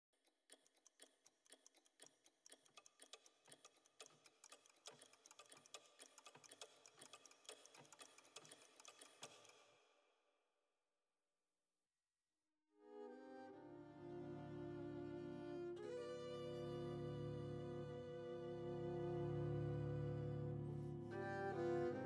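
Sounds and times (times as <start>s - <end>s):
faint rapid ticking: 0.2s - 9.8s.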